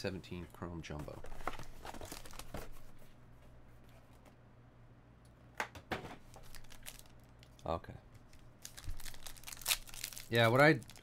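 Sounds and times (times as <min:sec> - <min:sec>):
foil pack crinkling: 0:06.3 - 0:07.7, 0:08.3 - 0:11.0.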